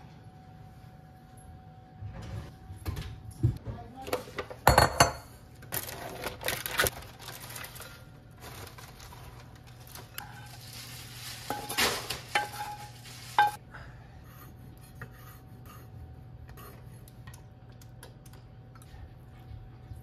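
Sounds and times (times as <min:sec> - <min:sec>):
utensil pan and bowl clinking: 0:11.4 - 0:13.6.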